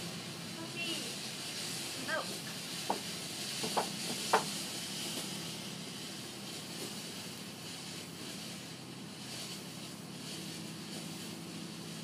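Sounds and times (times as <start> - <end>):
firework fountain hissing: 0.0 - 12.0
sharp pop: 2.8 - 5.3.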